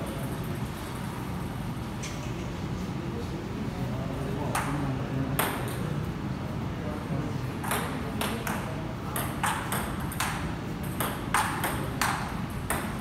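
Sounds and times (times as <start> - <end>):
table tennis ball clicking: 7.6 - 13.0.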